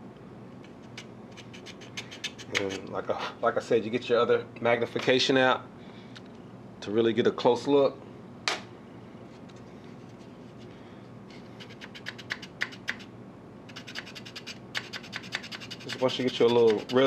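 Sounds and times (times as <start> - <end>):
file scraping plastic: 13.7 - 17.0.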